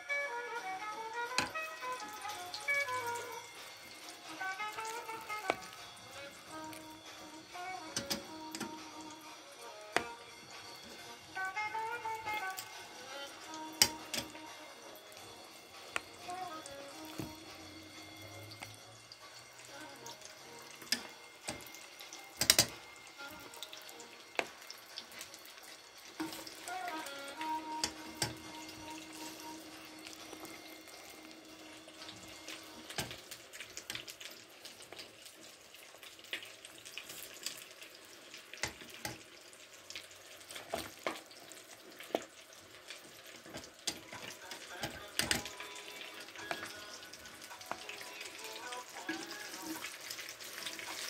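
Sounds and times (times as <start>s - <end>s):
hot oil sizzling: 0.0s - 51.0s
oil pops and crackles: 4.6s - 5.8s, 20.8s - 23.6s, 32.1s - 37.7s, 38.3s - 39.3s, 40.4s - 48.1s.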